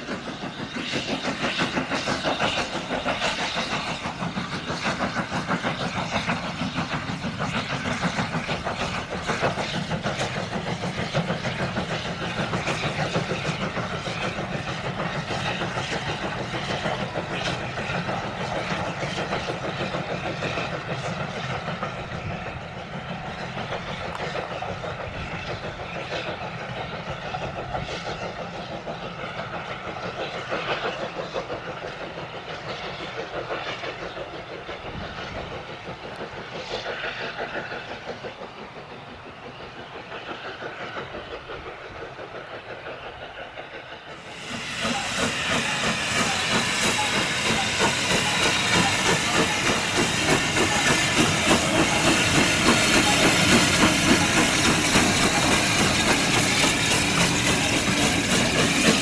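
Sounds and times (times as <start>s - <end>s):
loud steam hiss: 0.0s - 59.0s
steam locomotive chugging: 0.0s - 59.0s.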